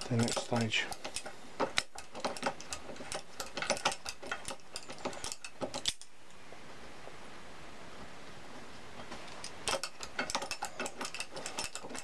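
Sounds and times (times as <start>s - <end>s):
locking pliers clicking on metal: 1.8s - 6.1s.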